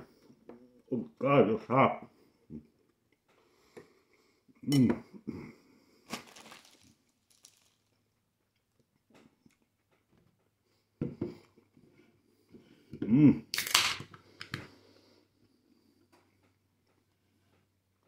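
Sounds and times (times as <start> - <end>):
man groaning: 13.0 - 13.5
man grunting: 13.0 - 13.5.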